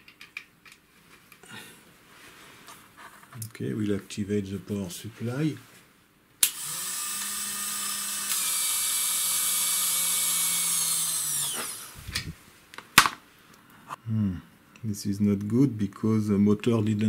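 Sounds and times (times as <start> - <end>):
servo motor whining: 6.4 - 12.4.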